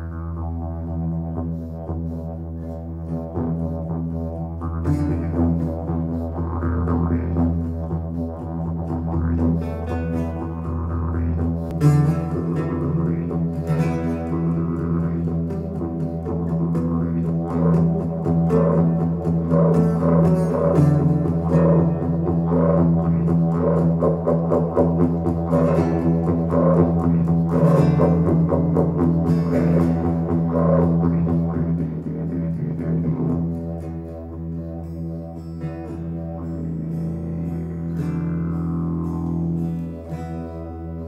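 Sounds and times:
steady low drone: 0:00.0 - 0:41.0.

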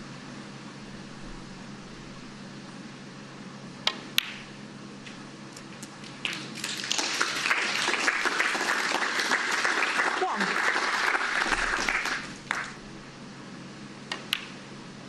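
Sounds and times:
snooker balls clicking together: 0:03.9 - 0:04.4
audience applauding: 0:06.0 - 0:12.8.

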